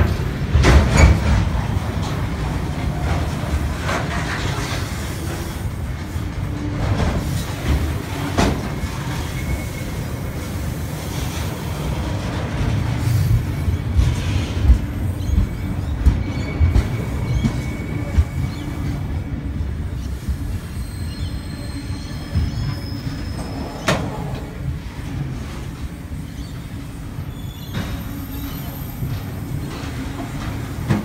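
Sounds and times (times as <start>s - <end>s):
train wheels rumbling on rails: 0.0s - 31.0s
faint wheel squeals: 13.2s - 24.5s, 26.1s - 30.0s.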